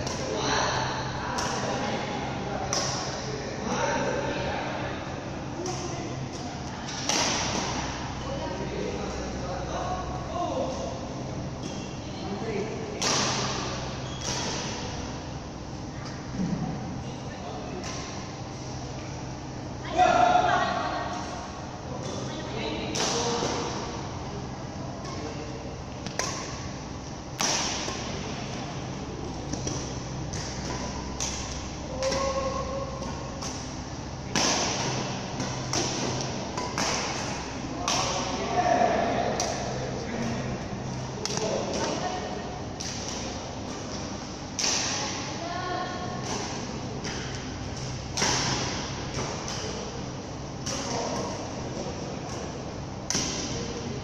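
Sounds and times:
ventilation hum: 0:00.0 - 0:54.0
rackets striking shuttlecock: 0:13.0 - 0:14.9, 0:26.0 - 0:28.6, 0:29.2 - 0:38.4, 0:42.7 - 0:45.3, 0:46.2 - 0:51.6, 0:52.3 - 0:53.8.

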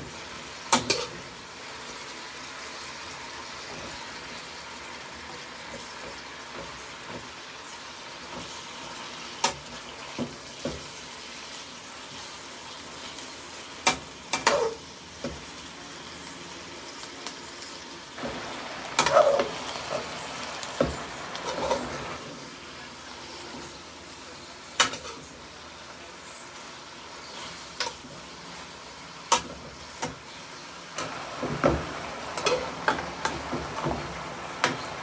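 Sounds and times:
vegetables sizzling in a frying pan: 0:00.0 - 0:35.0
utensil scraping a pan: 0:19.0 - 0:22.2.

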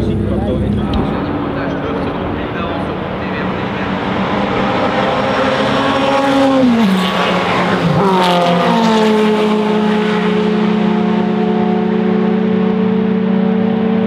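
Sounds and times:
rush of noise: 0:00.0 - 0:08.8
race cars passing at speed: 0:00.0 - 0:14.0
steady engine note: 0:00.0 - 0:14.0.

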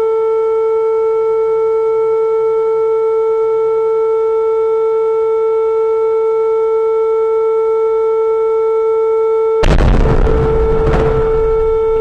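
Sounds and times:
emergency alert tone: 0:00.1 - 0:12.0
loud blast of noise: 0:09.6 - 0:12.0.

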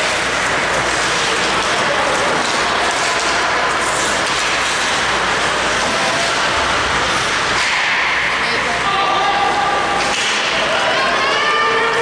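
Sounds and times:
ice hockey game noise: 0:00.0 - 0:12.0.

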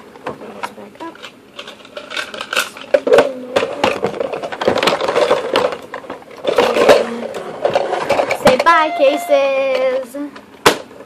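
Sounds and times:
plastic clicking and rattling: 0:00.2 - 0:08.7.

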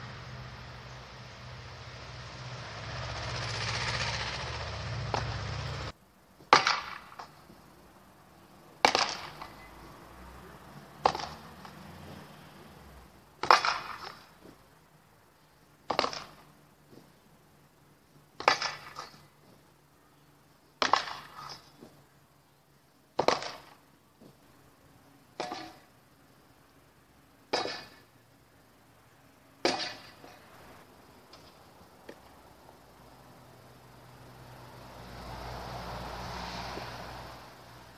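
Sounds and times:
rush of noise: 0:00.0 - 0:06.0
sword striking wooden post: 0:27.5 - 0:28.0, 0:29.6 - 0:30.1.

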